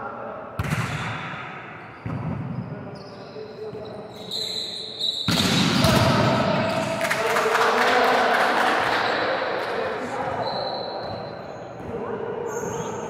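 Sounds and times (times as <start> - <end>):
players' voices: 0.0 - 13.0
volleyball struck and bouncing: 0.6 - 2.5, 5.2 - 7.2.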